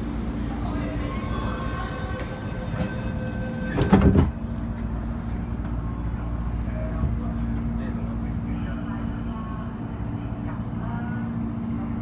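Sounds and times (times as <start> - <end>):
train doors shutting: 0.0 - 5.9
stopped train humming: 0.0 - 12.0.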